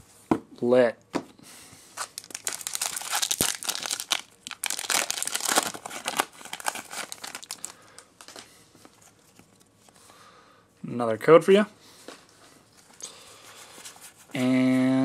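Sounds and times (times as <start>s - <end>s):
foil wrapper crinkling: 2.0s - 9.8s.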